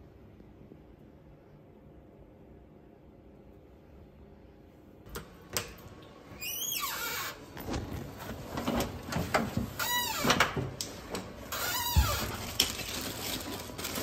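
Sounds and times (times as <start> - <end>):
fabric rustling: 7.4 - 9.3, 12.2 - 14.0.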